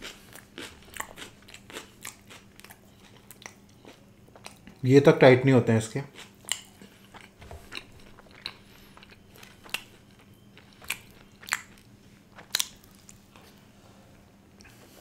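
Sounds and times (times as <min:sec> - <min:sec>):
person chewing food: 0:00.0 - 0:04.8, 0:06.1 - 0:13.6.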